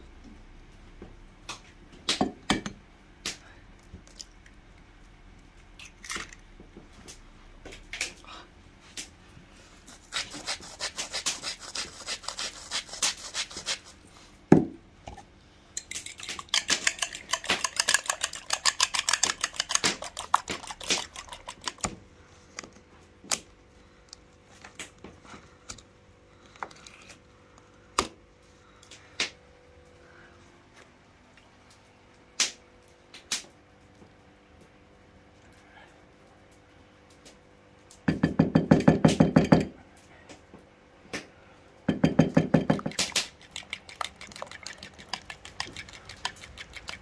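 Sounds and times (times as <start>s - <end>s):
fork whisking eggs in bowl: 9.9s - 14.0s, 15.8s - 22.0s, 42.0s - 47.0s.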